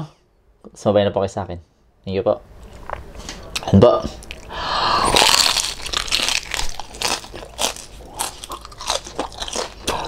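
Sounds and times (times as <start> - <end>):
crunching and chewing: 2.6 - 10.0.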